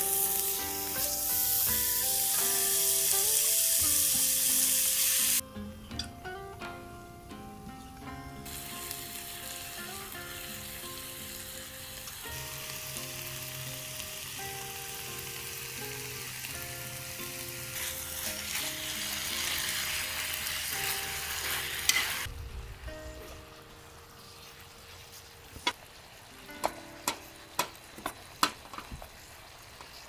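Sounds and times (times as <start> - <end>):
food sizzling in a frying pan: 0.0 - 5.4, 8.4 - 30.0
background music: 0.0 - 28.0.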